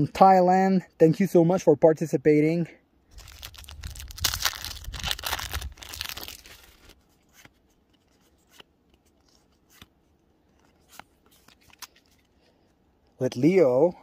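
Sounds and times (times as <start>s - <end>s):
foil wrapper tearing and crinkling: 3.1s - 7.0s.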